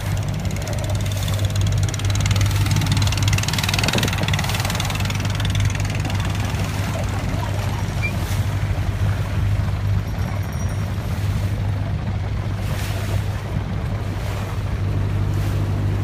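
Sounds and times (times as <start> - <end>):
motorboat engine droning: 0.0 - 16.0.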